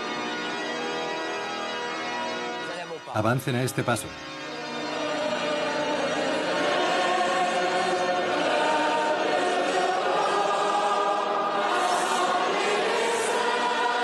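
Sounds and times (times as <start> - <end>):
choir singing a slow hymn: 4.6 - 14.0.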